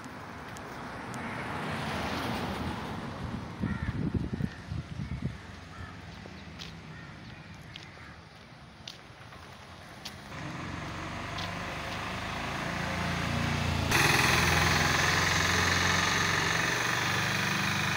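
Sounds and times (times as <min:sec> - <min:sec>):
vehicle engine running: 0:10.3 - 0:17.9.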